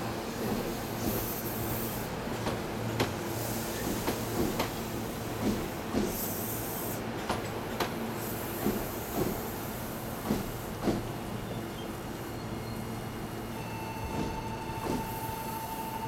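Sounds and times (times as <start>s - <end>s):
train low hum: 0.0s - 16.0s
hiss: 0.4s - 2.1s, 3.3s - 7.0s, 8.1s - 11.1s
train wheels clacking over rail joints: 5.4s - 6.2s, 7.2s - 9.5s, 10.2s - 11.1s, 14.1s - 15.1s.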